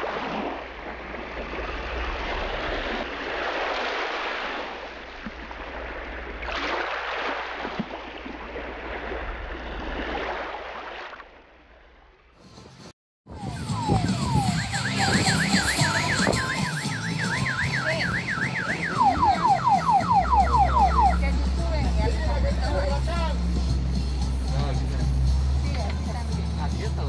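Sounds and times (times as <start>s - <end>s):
boat engine low rumble: 0.0s - 6.5s, 13.3s - 27.0s
water rushing along boat hull: 0.0s - 12.0s, 13.5s - 27.0s.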